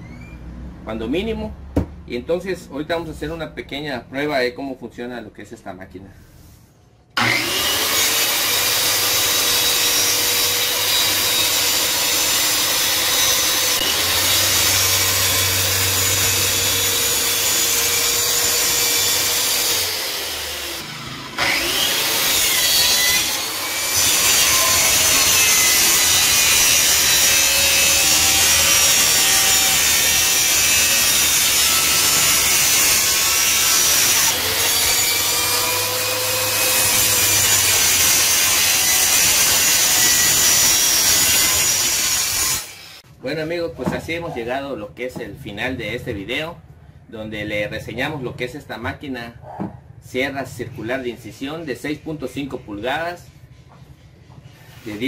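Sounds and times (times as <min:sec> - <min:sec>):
track saw cutting wood: 0:07.2 - 0:43.0.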